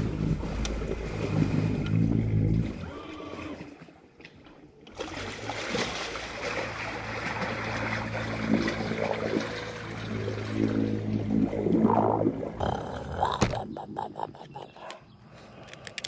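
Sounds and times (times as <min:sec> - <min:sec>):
boat motor humming: 0:00.0 - 0:02.9, 0:05.3 - 0:15.4
water trickling and splashing: 0:00.0 - 0:12.8.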